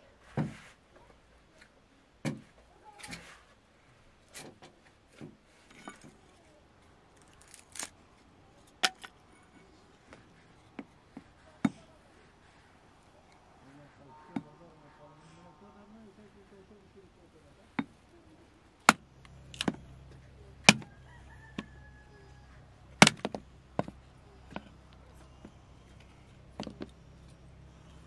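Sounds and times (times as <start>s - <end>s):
objects knocking and clicking: 8.7s - 9.2s, 23.0s - 27.4s.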